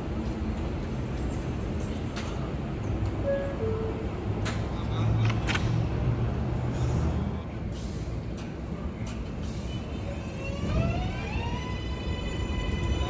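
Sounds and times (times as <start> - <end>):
air brake hisses: 7.7 - 8.3, 9.4 - 10.0.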